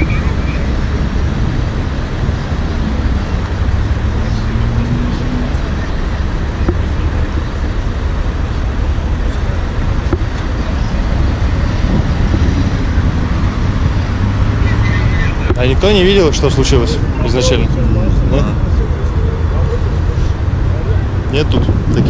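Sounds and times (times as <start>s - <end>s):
motorway traffic rumble: 0.0s - 22.0s
vehicle engine hum: 0.0s - 22.0s.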